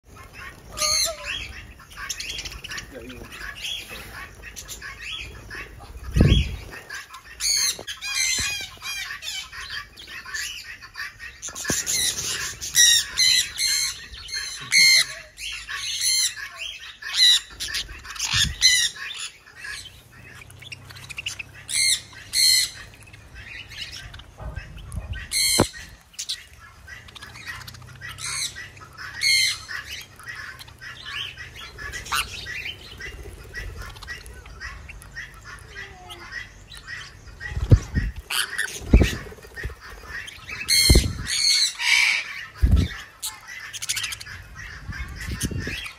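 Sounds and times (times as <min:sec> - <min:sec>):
birds chirping: 0:00.0 - 0:45.9
parrots screeching: 0:00.2 - 0:45.9
wing flutters: 0:37.6 - 0:41.6.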